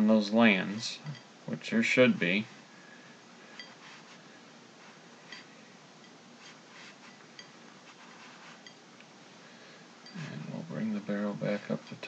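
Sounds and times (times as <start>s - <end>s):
steady low hiss: 0.0s - 12.0s.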